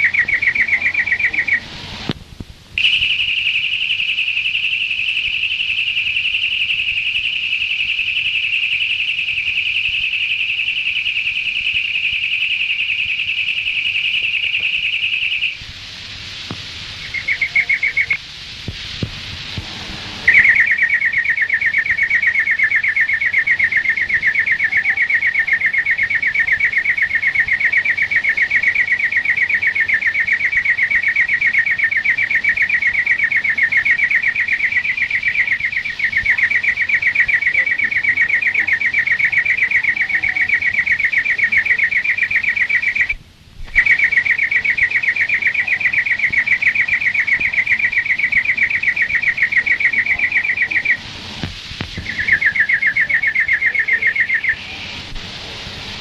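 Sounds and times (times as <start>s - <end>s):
bird singing fast trill: 17.0s - 18.2s, 52.0s - 54.6s.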